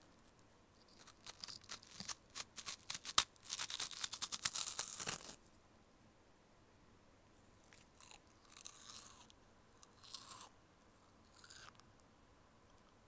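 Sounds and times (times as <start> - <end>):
corn snack crunching: 0.9 - 5.4, 7.7 - 10.5, 11.3 - 11.8.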